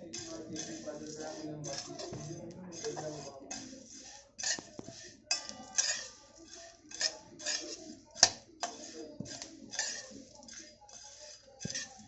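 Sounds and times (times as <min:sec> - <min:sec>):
spices scraping and rattling in pan: 0:00.0 - 0:12.0
spatula knocking on pan: 0:06.9 - 0:11.9.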